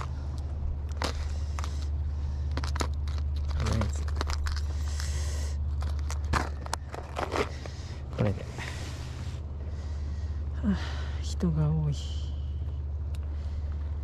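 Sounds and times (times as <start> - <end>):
steady low rumble: 0.0 - 14.0
plastic lure box clicking and scraping: 0.9 - 5.1.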